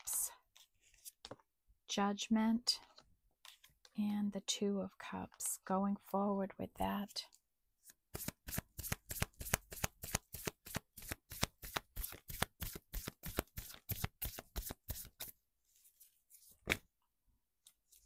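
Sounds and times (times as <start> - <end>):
cards being shuffled: 8.1 - 15.3, 16.4 - 16.9.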